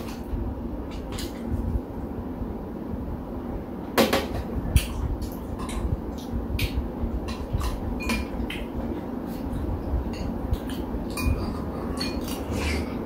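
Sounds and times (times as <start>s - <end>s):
spoons clinking on ceramic bowls: 11.1s - 12.4s.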